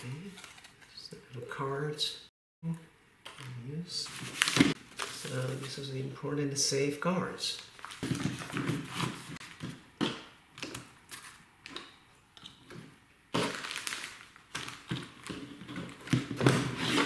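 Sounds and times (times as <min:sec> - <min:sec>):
paper rustling and sliding: 0:04.0 - 0:05.9, 0:07.8 - 0:09.8, 0:16.0 - 0:17.0
plastic bag crinkling: 0:07.7 - 0:08.6, 0:13.4 - 0:16.5.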